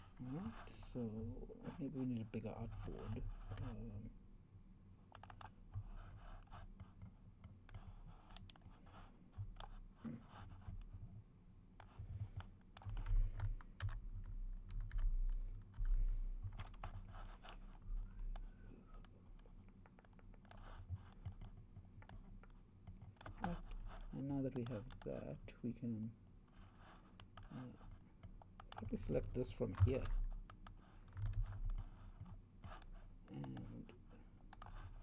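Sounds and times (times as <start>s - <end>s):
keyboard and mouse clicks: 5.1s - 9.8s, 11.8s - 17.7s, 18.3s - 23.9s, 24.6s - 25.1s, 27.0s - 27.5s, 28.2s - 33.7s, 34.5s - 34.9s.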